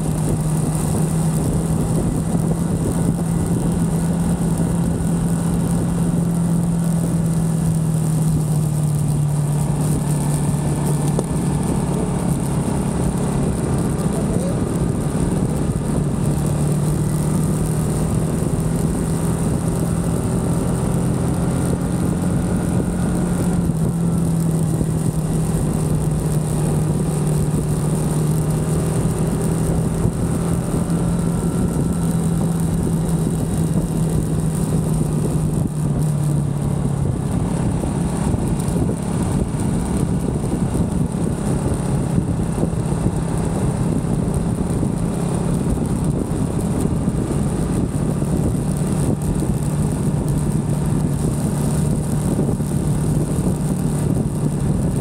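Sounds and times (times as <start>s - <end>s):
motorcycle engine running: 0.0s - 55.0s
road noise rushing: 0.0s - 55.0s.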